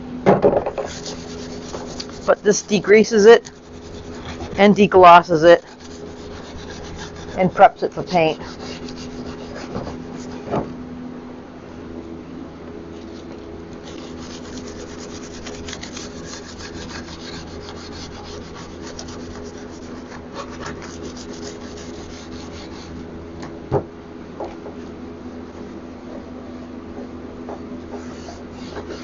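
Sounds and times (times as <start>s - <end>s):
steady low hum: 0.0s - 29.0s
scouring pad scrubbing wood: 0.8s - 10.5s, 13.8s - 23.0s.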